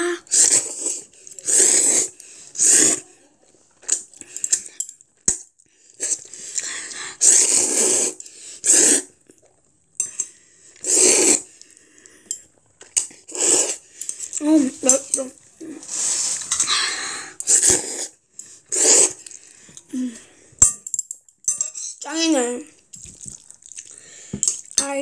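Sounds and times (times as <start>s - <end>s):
child slurping noodles: 0.0s - 3.2s, 5.9s - 9.6s, 10.7s - 11.8s, 13.0s - 14.8s, 15.6s - 20.2s.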